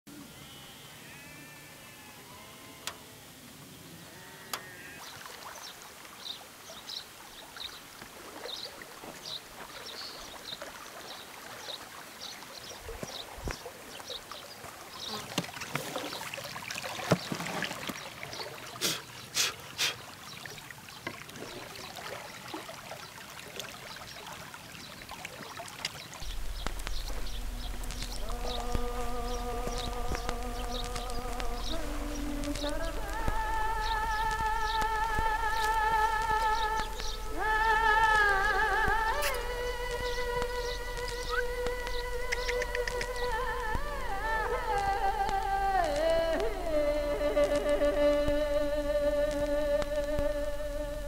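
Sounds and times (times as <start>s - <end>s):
river water lapping: 1.9s - 51.0s
sharp clicks: 26.2s - 51.0s
steady buzzing hum: 26.2s - 51.0s.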